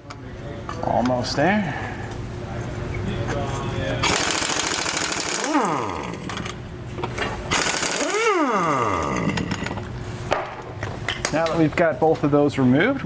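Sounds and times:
air motor spinning down: 4.0s - 6.6s, 7.5s - 10.0s
impact wrench hammering: 4.0s - 6.6s, 7.5s - 10.7s.

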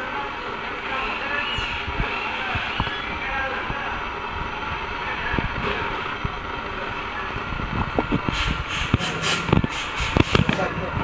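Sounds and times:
factory rumble: 0.0s - 11.0s
short hissing sounds: 8.3s - 10.5s.

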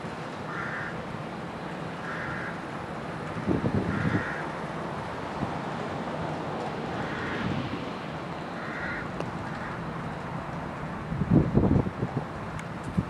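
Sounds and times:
steady outdoor hiss: 0.0s - 13.0s
wind buffeting microphone: 3.3s - 4.4s, 6.3s - 13.0s.

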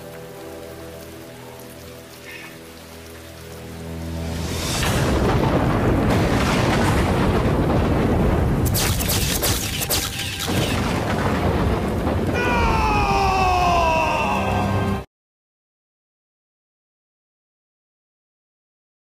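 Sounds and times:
heavy rain downpour: 0.0s - 15.1s.

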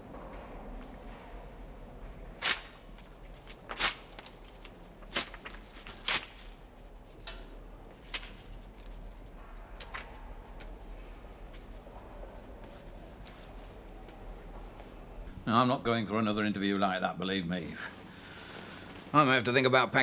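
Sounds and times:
faint steady hum: 0.0s - 20.0s
paper ripping: 2.4s - 6.7s, 8.0s - 9.2s.

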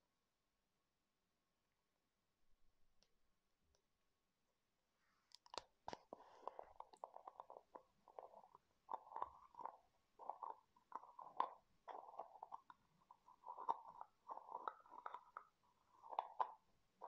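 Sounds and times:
scratchy rubbing and clicking: 6.0s - 17.0s.

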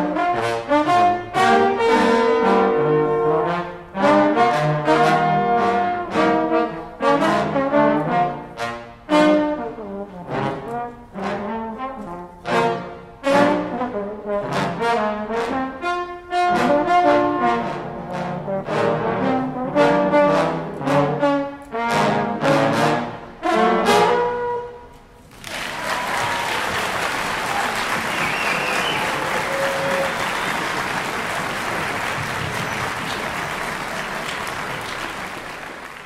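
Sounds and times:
trombone ensemble playing swing: 0.0s - 24.9s, 27.0s - 36.0s
audience applause: 25.3s - 36.0s.

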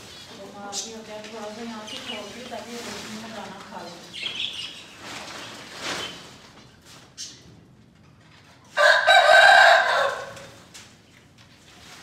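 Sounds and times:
rooster crowing: 8.8s - 10.6s.

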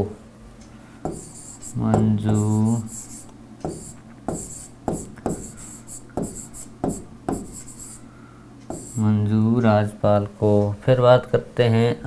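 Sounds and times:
stylus scratching on tablet screen: 1.1s - 8.1s, 8.7s - 9.1s.

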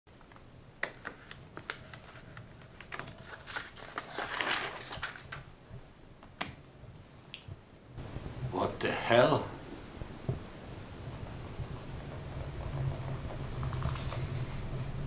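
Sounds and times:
plastic parts rattling: 0.3s - 5.4s.

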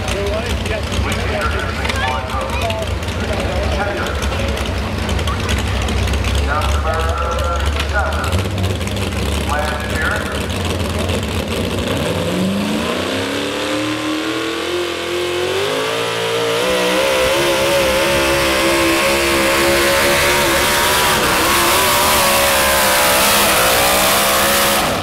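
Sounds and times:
truck engine at full throttle: 0.0s - 25.0s.

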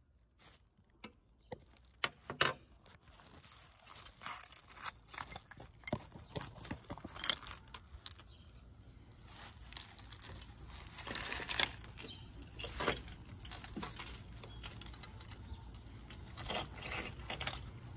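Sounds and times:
plastic sheeting crinkling: 0.3s - 0.9s, 2.7s - 8.6s
crackles and clicks: 9.3s - 17.9s.

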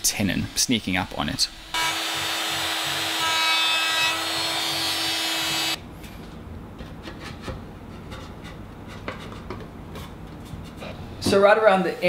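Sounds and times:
trim router whining: 1.6s - 5.8s.

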